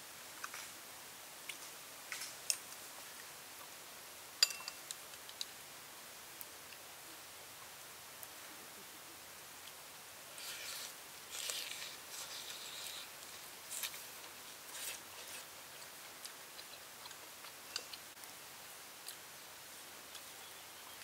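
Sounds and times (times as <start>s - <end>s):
crisp leaf rustling: 10.3s - 17.1s
person chewing: 10.3s - 18.1s.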